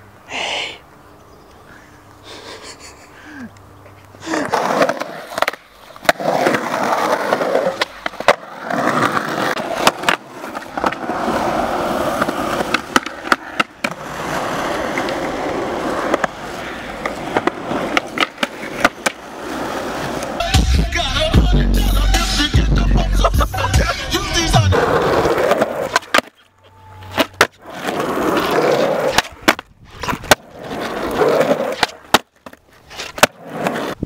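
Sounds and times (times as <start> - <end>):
skateboard wheels rolling on concrete: 0.0 - 34.0
skateboard clacking on ground: 4.4 - 20.5, 24.7 - 34.0.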